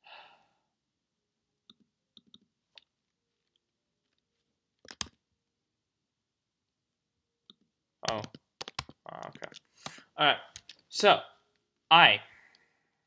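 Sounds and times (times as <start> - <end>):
keyboard keystrokes: 4.8 - 5.2, 7.5 - 10.0.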